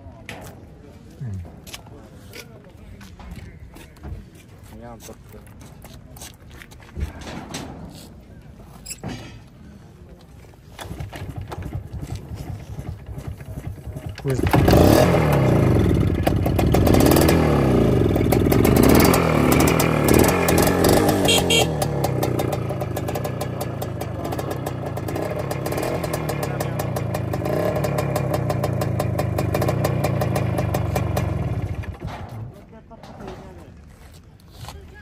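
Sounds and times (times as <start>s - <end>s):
motorcycle engine revving: 11.0s - 32.1s.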